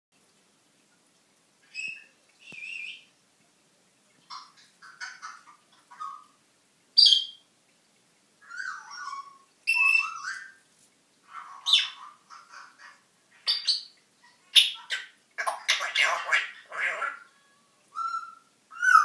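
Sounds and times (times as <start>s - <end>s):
parrot squawking and whistling: 8.4s - 10.6s, 14.6s - 19.0s.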